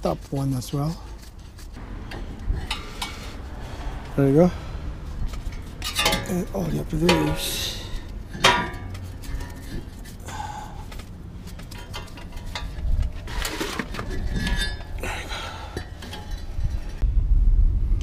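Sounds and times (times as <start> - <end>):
metallic clinks and scrapes: 0.9 - 4.0, 5.0 - 17.0.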